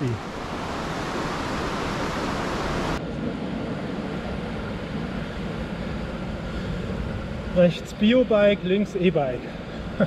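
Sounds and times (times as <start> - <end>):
bicycle tyre and road noise: 0.0 - 10.0
wind rushing over microphone: 0.0 - 10.0.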